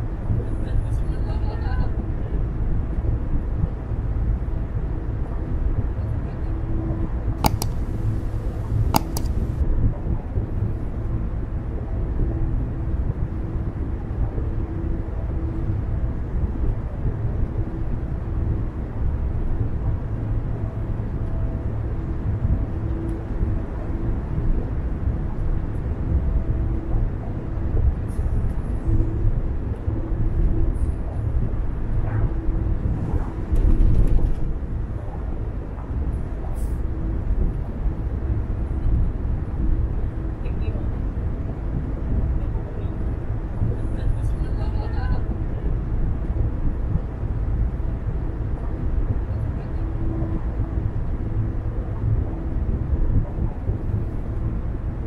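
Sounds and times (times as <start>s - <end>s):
road and tyre rumble: 1.8s - 55.0s
brief clicks: 7.4s - 9.6s.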